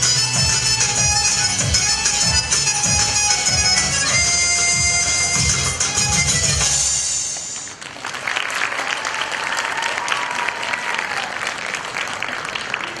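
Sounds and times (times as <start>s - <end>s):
music: 0.0s - 7.7s
audience applauding: 7.4s - 13.0s.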